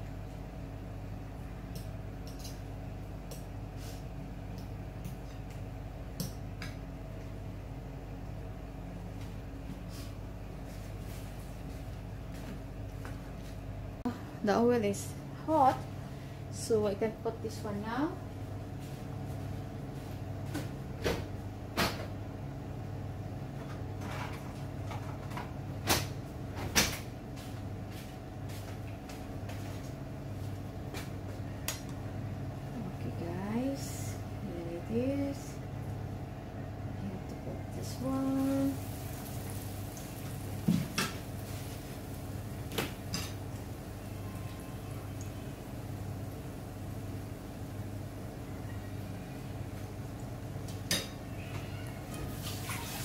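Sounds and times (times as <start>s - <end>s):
steady low hum: 0.0s - 52.3s
fish frying in oil: 38.0s - 51.3s.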